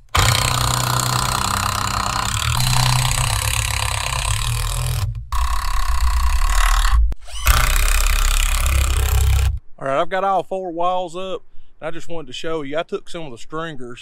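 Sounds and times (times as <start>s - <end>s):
cordless drill driving screw: 0.0s - 9.6s.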